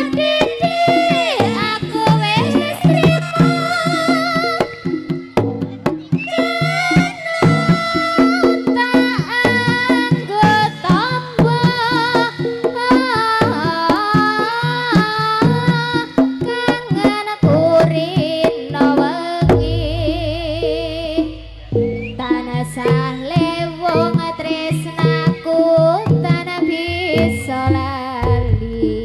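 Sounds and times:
high wavering melody: 0.0s - 13.4s, 18.6s - 29.0s
hand drum strokes: 0.0s - 29.0s
deep sustained low note: 19.7s - 23.2s.

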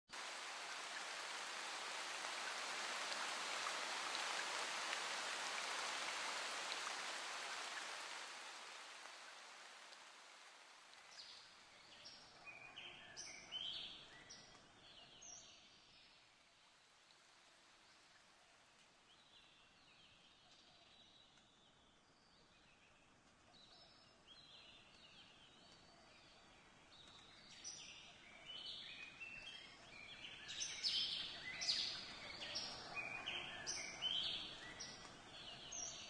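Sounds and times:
rushing water: 0.1s - 14.2s.

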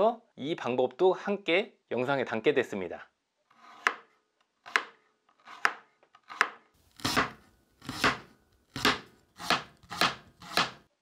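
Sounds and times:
knife cutting onto wooden board: 3.6s - 4.1s, 4.7s - 10.9s.

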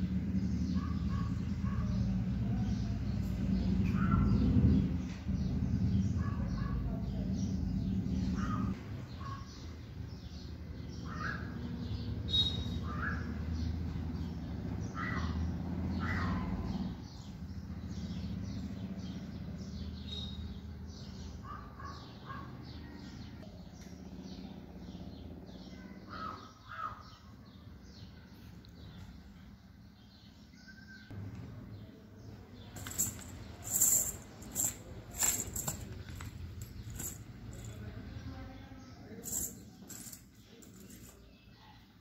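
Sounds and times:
rapid high bird chirps: 11.1s - 13.4s
falling bird calls: 14.9s - 31.2s.

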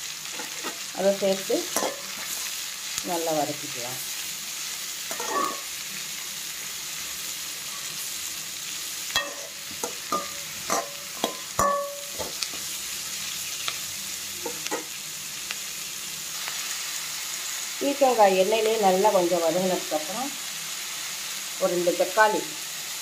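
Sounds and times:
vegetables sizzling in oil: 0.0s - 23.0s
metal spatula scraping a pan: 0.2s - 0.9s, 1.6s - 2.6s, 5.0s - 5.8s, 7.6s - 8.2s, 9.1s - 12.7s.

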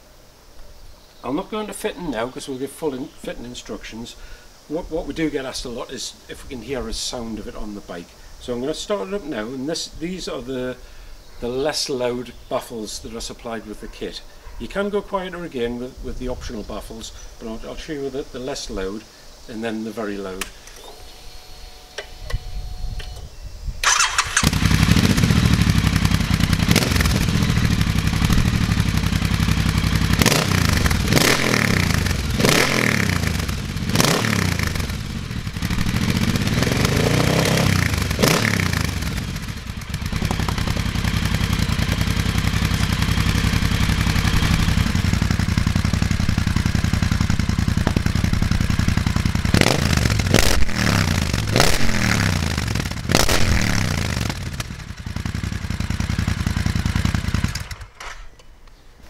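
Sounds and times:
motorcycle engine revving: 23.8s - 58.2s.

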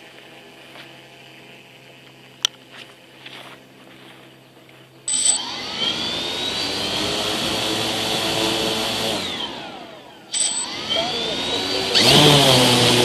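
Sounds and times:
quadcopter motors and propellers: 0.0s - 13.0s.

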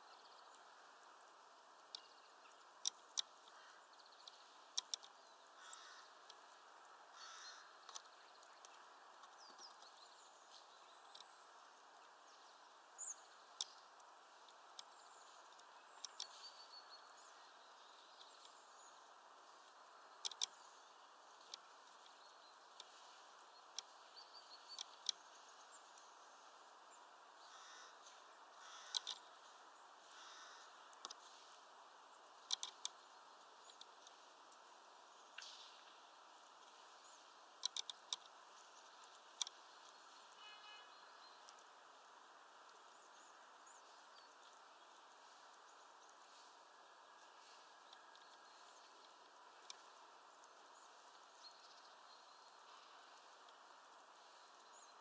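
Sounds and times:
faint hiss: 0.0s - 55.0s
woodpecker tapping: 1.8s - 40.4s.

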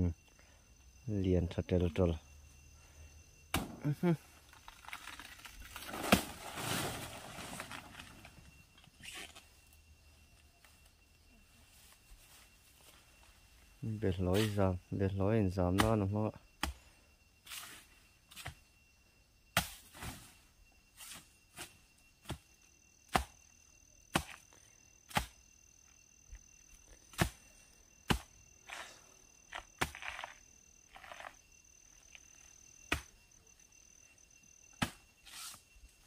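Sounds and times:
insects shrilling: 0.0s - 36.0s
machete chopping plant trunk: 3.5s - 3.9s, 15.8s - 16.0s, 16.6s - 16.8s, 23.1s - 23.4s, 24.1s - 24.4s, 25.1s - 25.4s, 27.1s - 27.4s, 28.1s - 28.3s, 34.7s - 35.0s.

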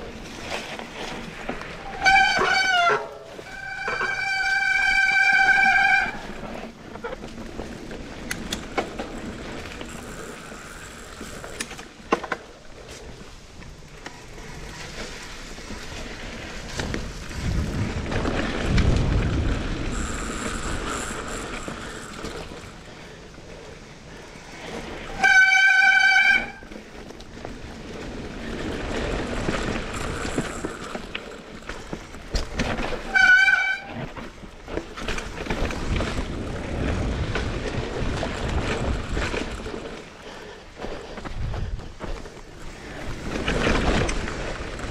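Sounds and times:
bike rattle and tyre noise: 0.0s - 44.9s
bike brakes squealing: 1.7s - 7.2s, 19.8s - 22.8s, 24.8s - 26.8s, 32.8s - 34.1s.

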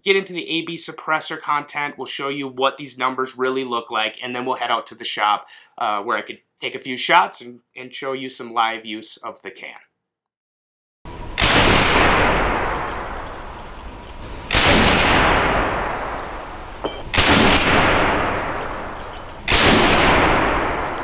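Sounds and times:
heavy gunshot booms: 11.4s - 13.8s, 14.4s - 21.0s.

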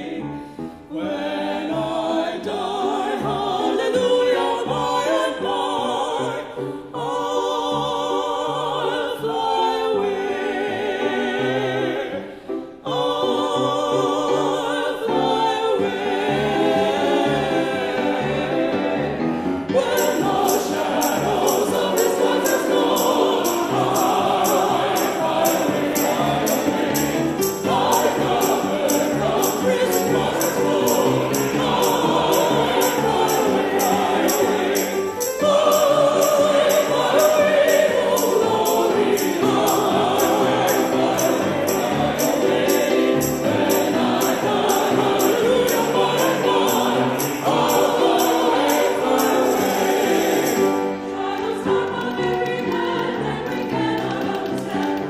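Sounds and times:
choir singing: 0.0s - 55.0s
piano accompaniment: 0.0s - 55.0s.

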